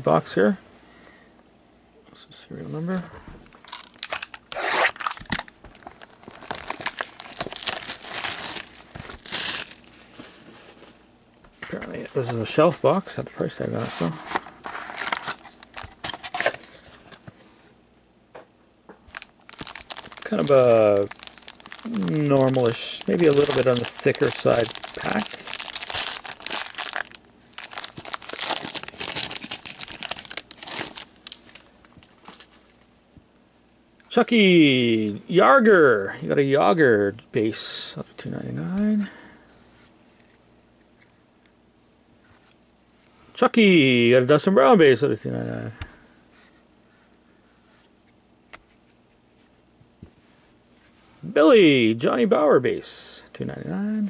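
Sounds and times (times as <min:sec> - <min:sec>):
plastic shrink-wrap tearing: 0:03.6 - 0:09.9, 0:19.1 - 0:31.7.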